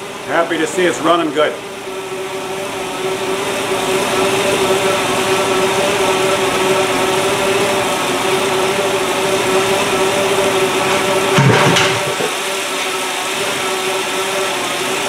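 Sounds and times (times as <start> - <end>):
car engine running: 10.0 - 12.3.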